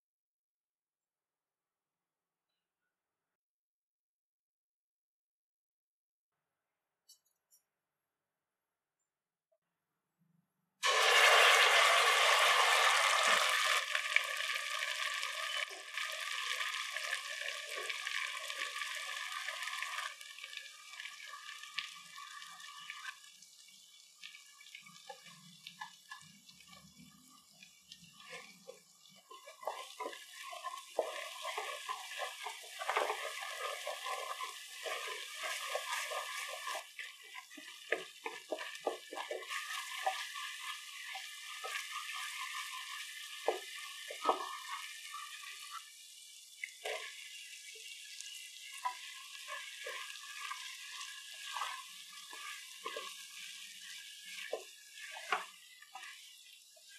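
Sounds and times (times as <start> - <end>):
paste sizzling in hot oil: 10.8 - 56.9
wooden spatula stirring and scraping: 14.8 - 20.1, 24.9 - 56.9.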